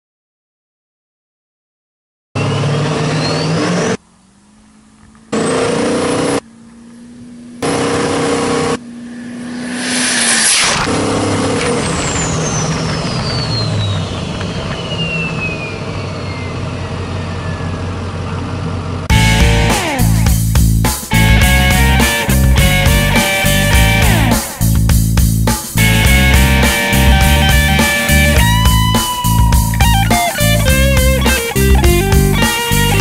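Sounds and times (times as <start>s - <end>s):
truck engines revving: 2.4s - 33.0s
rising rush: 7.6s - 17.6s, 19.0s - 33.0s
high rising whistle: 8.7s - 18.1s
long falling whistle: 11.7s - 18.0s.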